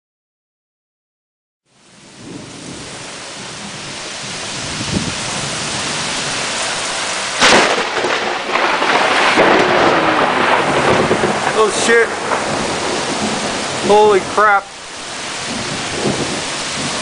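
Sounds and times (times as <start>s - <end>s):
heavy rain pouring: 1.7s - 17.0s
loud thunder clap: 7.3s - 17.0s.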